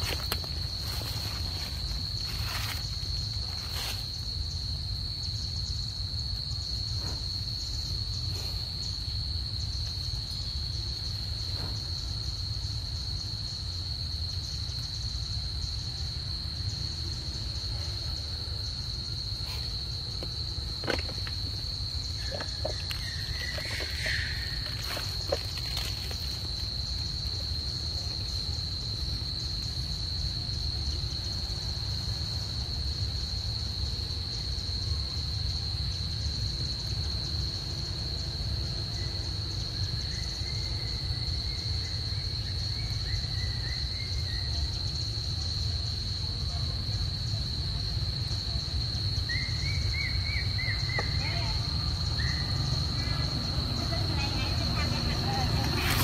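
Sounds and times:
insects droning high-pitched: 0.0s - 56.0s.

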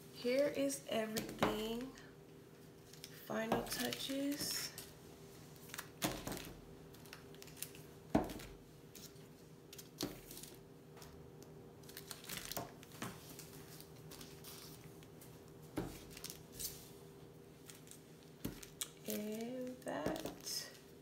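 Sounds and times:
faint steady hum: 0.0s - 21.0s
cellophane bags crinkling: 2.8s - 4.9s, 5.6s - 11.1s, 11.8s - 15.2s, 15.9s - 16.9s, 17.6s - 21.0s.

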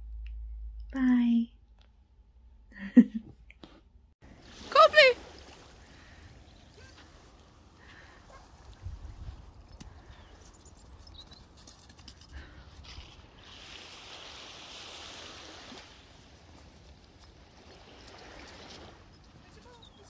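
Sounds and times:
wind rumble on microphone: 8.3s - 11.2s.

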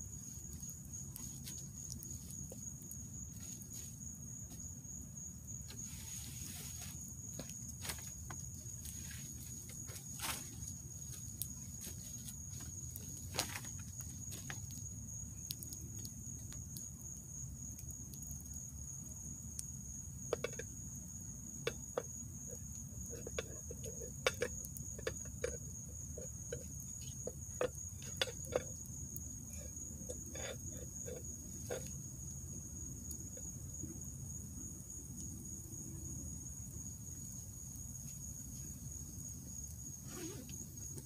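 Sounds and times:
campfire crackling and popping: 0.0s - 4.8s, 6.9s - 34.2s
insect trill: 0.0s - 41.0s.

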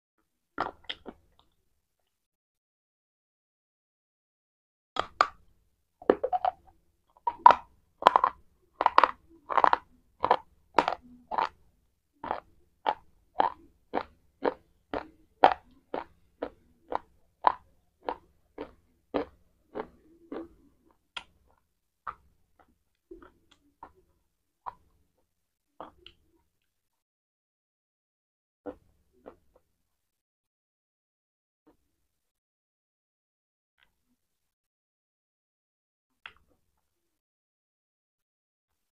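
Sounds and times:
chewing crunches: 0.6s - 1.5s, 6.1s - 11.6s, 12.2s - 24.0s.

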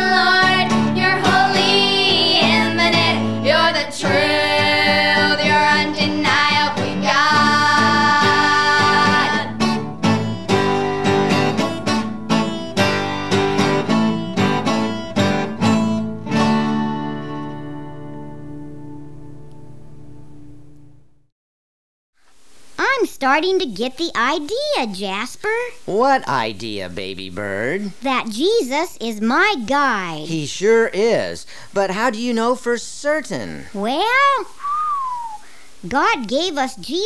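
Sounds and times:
girls singing together: 0.0s - 9.6s
acoustic guitar strumming: 0.0s - 21.0s.

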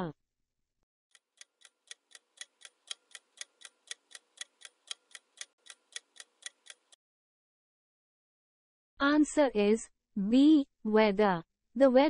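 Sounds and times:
clock ticking: 1.1s - 7.0s.

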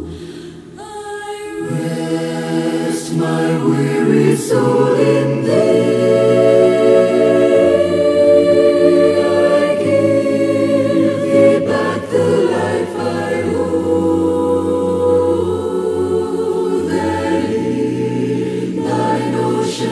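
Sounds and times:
choir singing a hymn: 0.0s - 19.9s.

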